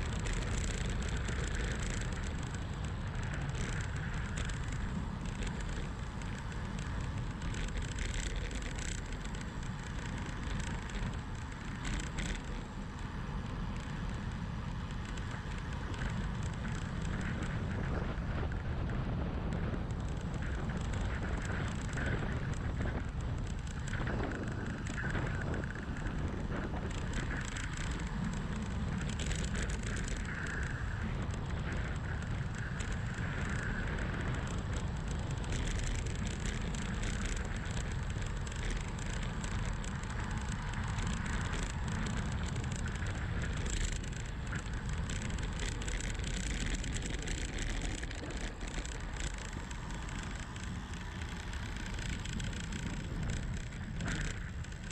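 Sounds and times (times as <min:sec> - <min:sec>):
tyres humming on asphalt: 0:00.0 - 0:54.9
wind rushing over microphone: 0:00.0 - 0:54.9.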